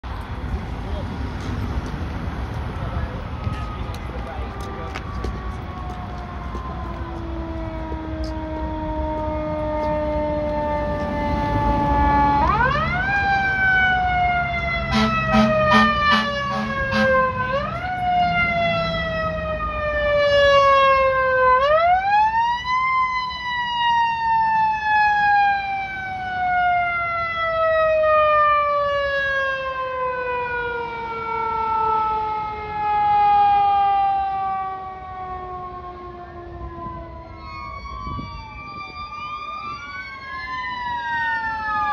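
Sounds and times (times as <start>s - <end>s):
fire engine siren wailing: 0.0s - 41.9s
air horn blasts: 14.9s - 17.4s.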